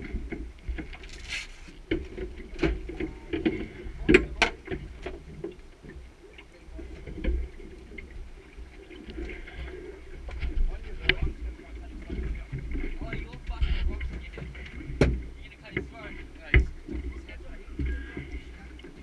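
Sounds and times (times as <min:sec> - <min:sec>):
knocks on boat deck: 0:15.0 - 0:15.2.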